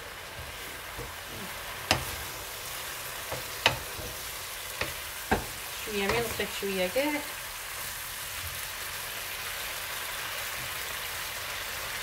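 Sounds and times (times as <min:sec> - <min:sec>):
vegetables sizzling in a frying pan: 0:00.0 - 0:12.0
wooden spoon stirring: 0:00.3 - 0:06.7
spoon knocking against pan: 0:00.4 - 0:02.3, 0:03.2 - 0:06.6.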